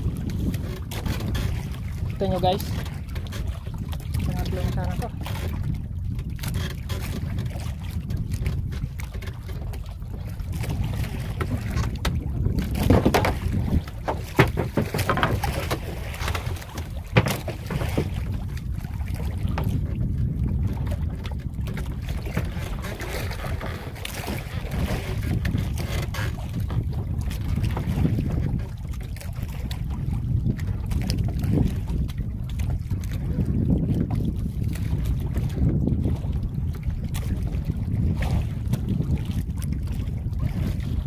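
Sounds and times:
boat engine rumble: 0:00.0 - 0:41.0
water noise: 0:00.0 - 0:41.0
wind: 0:00.0 - 0:41.0
sharp knocks: 0:14.0 - 0:15.4.

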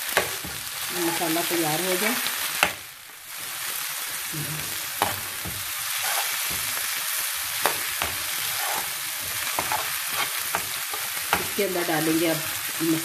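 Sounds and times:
vegetables sizzling in oil: 0:00.0 - 0:13.0
spatula tapping and scraping pan: 0:05.0 - 0:07.0, 0:07.6 - 0:11.6.

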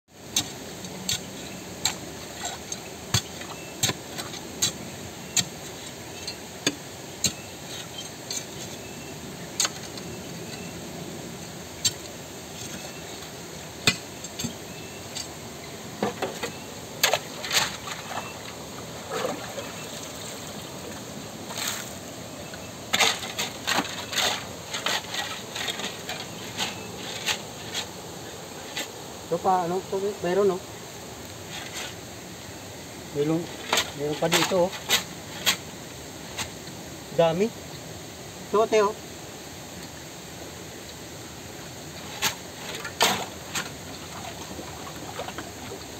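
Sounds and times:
running water hiss: 0:00.1 - 0:45.9
shovel striking stones: 0:00.3 - 0:04.8, 0:13.9 - 0:14.6.

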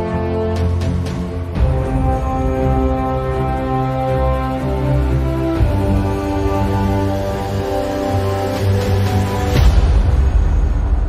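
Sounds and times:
sustained chords over deep bass: 0:00.0 - 0:11.0.

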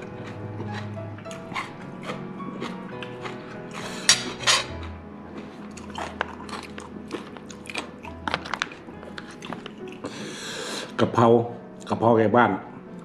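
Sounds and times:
soft background music: 0:00.0 - 0:13.0
fork clattering: 0:03.7 - 0:04.9
fork scraping plastic tray: 0:03.8 - 0:04.9.

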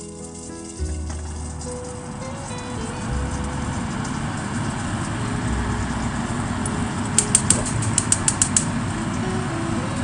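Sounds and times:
low rumbling hum: 0:00.0 - 0:10.0
sharp clicks: 0:06.6 - 0:08.8.

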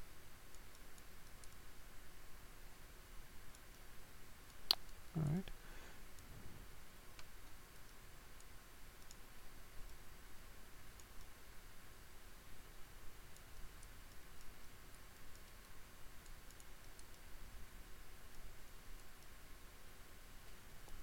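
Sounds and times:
computer mouse clicks: 0:00.5 - 0:01.7, 0:03.5 - 0:03.9, 0:07.1 - 0:09.2, 0:09.8 - 0:10.0, 0:10.9 - 0:11.4, 0:13.3 - 0:17.3, 0:18.2 - 0:19.4, 0:20.5 - 0:21.0.

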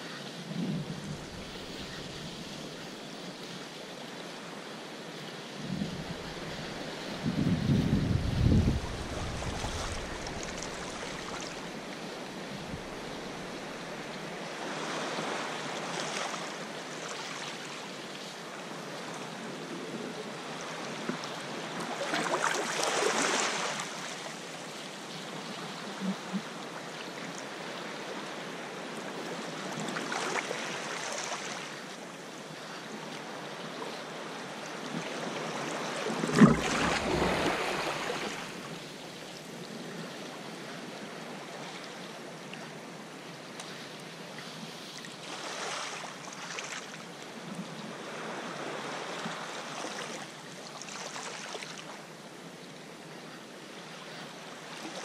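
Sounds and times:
waves breaking against rocks: 0:05.7 - 0:14.1, 0:34.7 - 0:38.7.

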